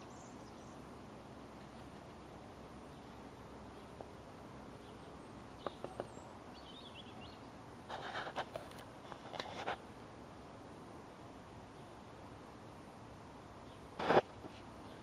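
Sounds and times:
faint bird chirp: 0:00.0 - 0:02.2, 0:02.8 - 0:08.1, 0:11.6 - 0:12.2, 0:13.6 - 0:15.0
faint outdoor background noise: 0:00.0 - 0:15.0
clicks and rustles: 0:07.9 - 0:09.8.

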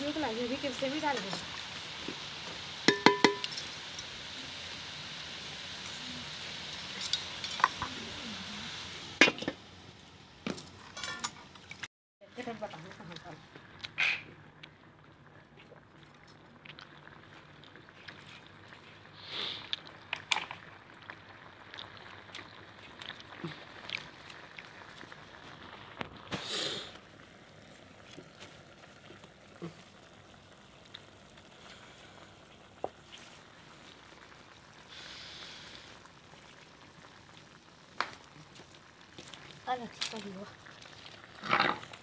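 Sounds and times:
vegetables sizzling in pan: 0:00.0 - 0:10.5, 0:19.1 - 0:42.0
short hisses: 0:26.3 - 0:26.9.

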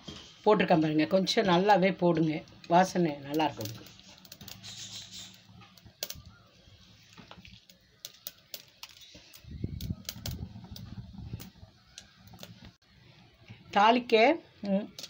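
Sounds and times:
seeds popping in hot oil: 0:01.4 - 0:12.8.

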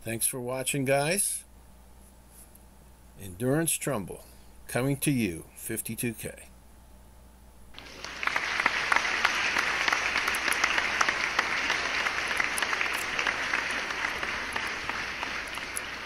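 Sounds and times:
crowd applause: 0:07.8 - 0:16.0.

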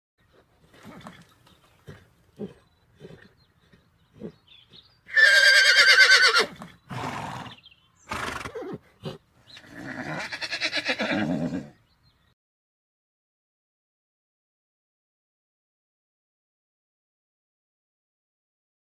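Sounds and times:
horse breathy snorts: 0:00.3 - 0:04.9, 0:06.5 - 0:10.2
horse whinnying: 0:05.1 - 0:11.8.

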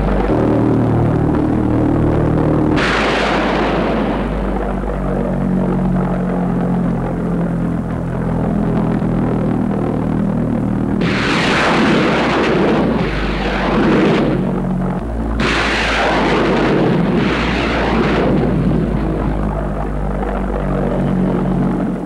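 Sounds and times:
steady low drone: 0:00.0 - 0:22.0
rushing roar of bomb launch: 0:02.6 - 0:06.3, 0:11.0 - 0:22.0.

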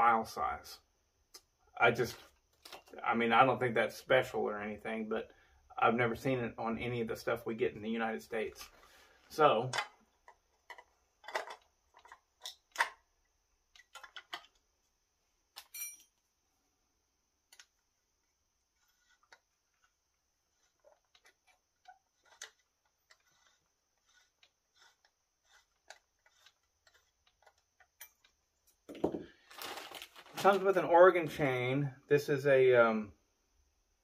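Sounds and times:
metallic clicks and knocks: 0:09.6 - 0:13.0.

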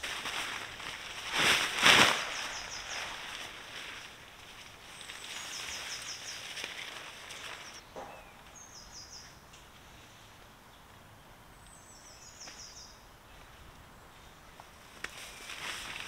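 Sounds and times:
tarp rustling: 0:00.0 - 0:07.8, 0:14.8 - 0:16.0.

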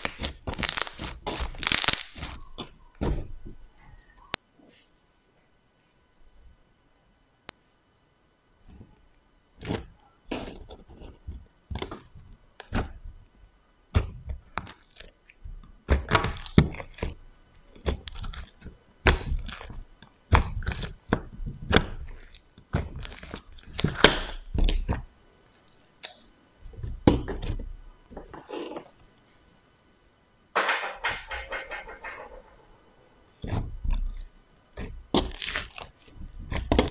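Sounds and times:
slime popping: 0:00.0 - 0:02.7, 0:34.8 - 0:36.9
slime squishing: 0:00.0 - 0:03.4, 0:09.6 - 0:13.0, 0:13.9 - 0:28.9, 0:33.4 - 0:36.9.

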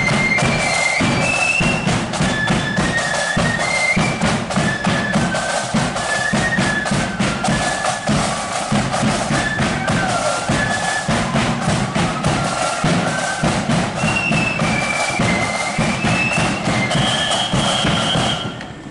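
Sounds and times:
bass and side drums beat: 0:00.0 - 0:18.4
high flutes playing melody: 0:00.0 - 0:18.9.

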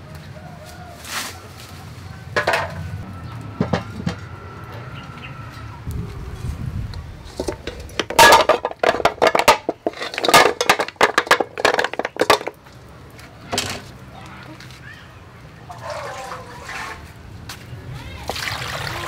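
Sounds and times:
clams clattering into metal pot: 0:07.3 - 0:12.6.

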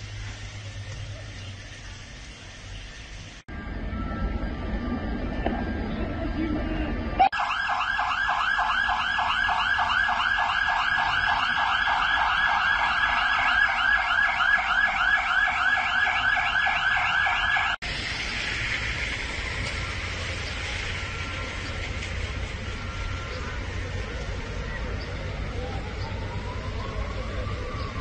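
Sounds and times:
electronic siren warbling: 0:07.2 - 0:17.8
steady rushing noise: 0:08.0 - 0:26.8.

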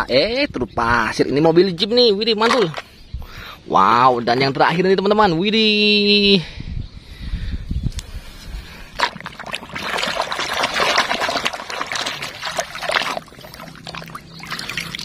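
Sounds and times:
water splashing and trickling: 0:08.9 - 0:15.0.

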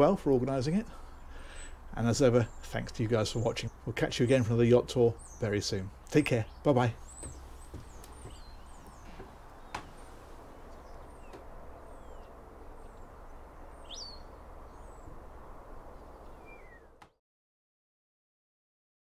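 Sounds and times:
low outdoor rumble: 0:00.0 - 0:17.0
high bird chirps: 0:10.7 - 0:15.1, 0:16.0 - 0:16.9.

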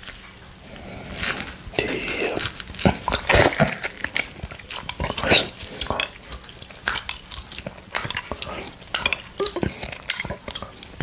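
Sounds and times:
wet slurping and sucking: 0:00.6 - 0:11.0
pulp squelching: 0:00.8 - 0:11.0.

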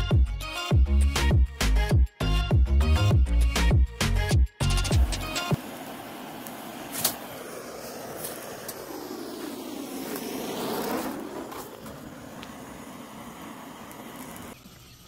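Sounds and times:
vehicle passing by: 0:05.6 - 0:14.6.

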